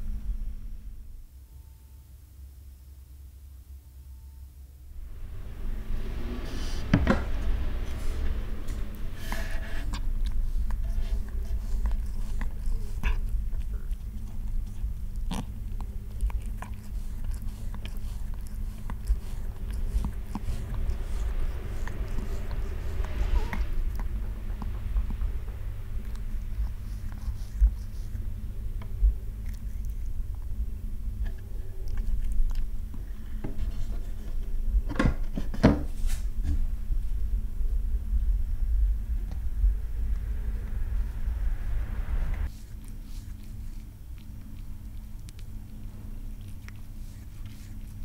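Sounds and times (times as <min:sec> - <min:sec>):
steady low rumble: 0:00.0 - 0:02.8, 0:04.7 - 0:48.0
low steady hum: 0:00.0 - 0:48.0
cat licking: 0:05.4 - 0:34.2, 0:42.2 - 0:48.0.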